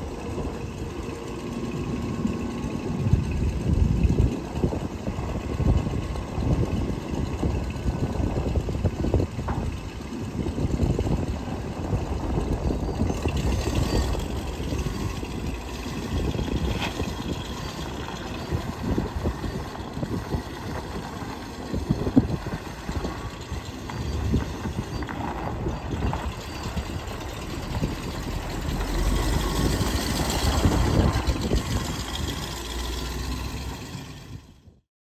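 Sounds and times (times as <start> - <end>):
truck engine running: 0.0 - 34.8.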